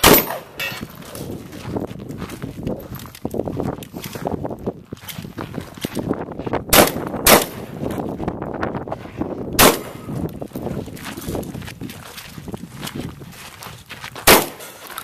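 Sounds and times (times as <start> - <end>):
shotgun shots: 0.0 - 0.6, 6.7 - 7.8, 9.6 - 10.1, 14.2 - 14.8
footsteps crunching on gravel: 0.4 - 15.0.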